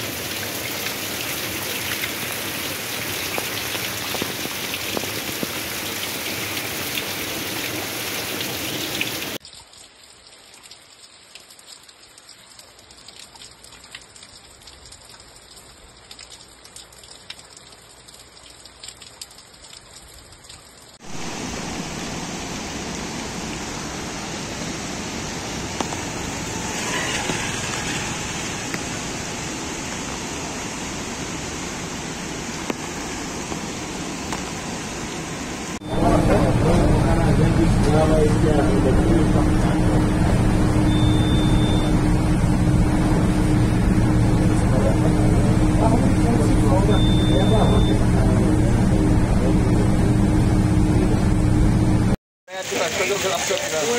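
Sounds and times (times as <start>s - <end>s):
river in flood rushing: 0.0s - 9.4s, 21.0s - 51.9s, 52.5s - 53.9s
water drips: 0.0s - 21.4s, 39.5s - 42.1s, 45.6s - 48.0s
heavy rain pouring: 0.0s - 53.9s.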